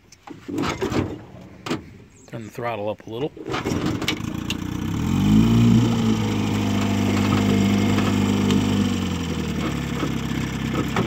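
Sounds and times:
outboard motor running: 3.5s - 11.0s.

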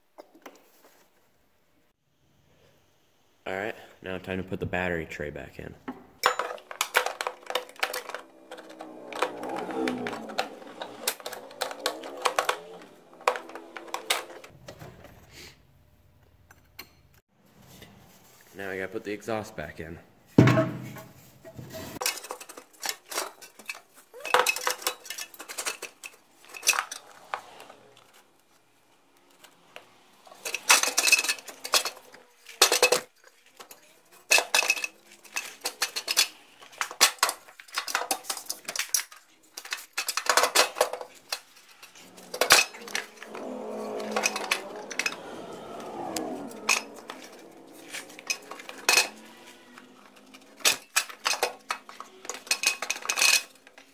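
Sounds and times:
metallic clanks and clinks: 6.2s - 14.5s, 22.0s - 28.2s, 30.2s - 53.9s
metal scraping: 6.3s - 14.6s, 20.6s - 53.9s.

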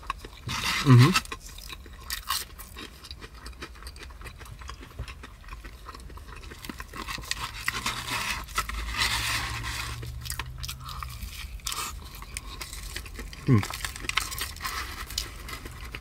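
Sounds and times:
chewing and crunching food: 0.0s - 16.0s
low steady hum: 0.0s - 16.0s.

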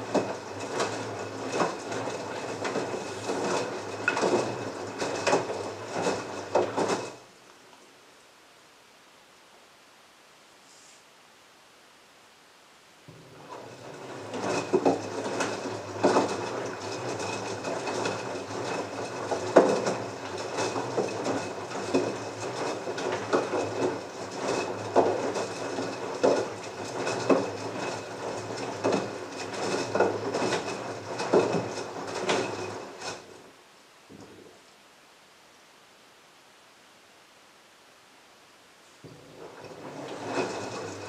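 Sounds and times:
washing machine motor humming: 0.0s - 7.3s, 13.1s - 33.5s, 39.0s - 41.0s.

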